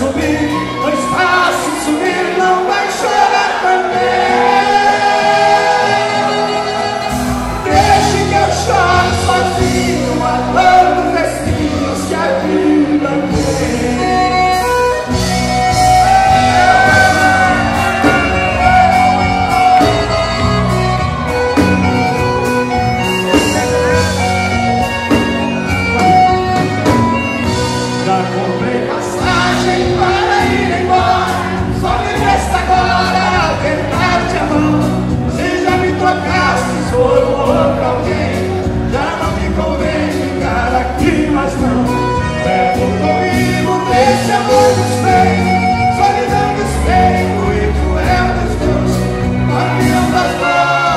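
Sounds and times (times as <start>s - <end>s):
men singing into microphones: 0.0s - 14.8s, 16.1s - 19.0s, 27.8s - 50.9s
accordion: 0.0s - 50.9s
acoustic guitar: 0.0s - 50.9s
drums: 4.0s - 50.9s.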